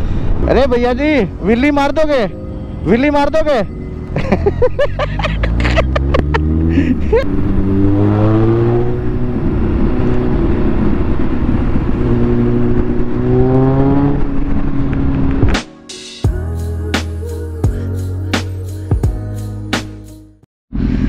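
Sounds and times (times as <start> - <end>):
wind and road noise: 0.0 - 15.7
motorcycle engine accelerating: 4.6 - 15.6.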